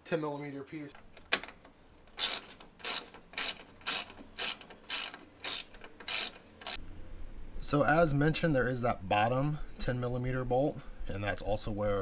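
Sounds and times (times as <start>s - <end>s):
ratchet wrench pawl rasping: 2.2s - 6.8s.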